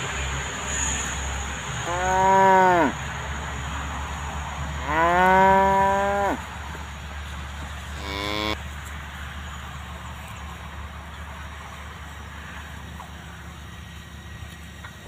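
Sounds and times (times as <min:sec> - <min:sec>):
cattle mooing: 0:01.8 - 0:03.0, 0:04.8 - 0:06.4, 0:08.0 - 0:08.6.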